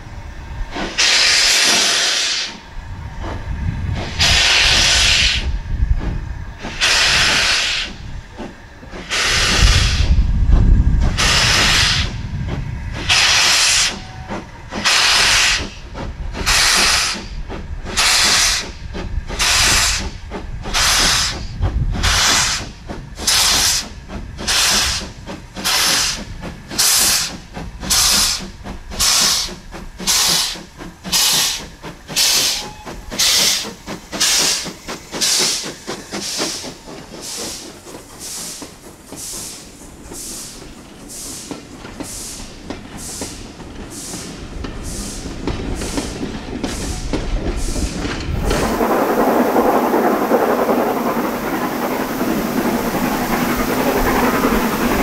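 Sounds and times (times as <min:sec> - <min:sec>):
steam locomotive chuffing: 0:00.0 - 0:55.0
heavy low rumble: 0:48.3 - 0:55.0.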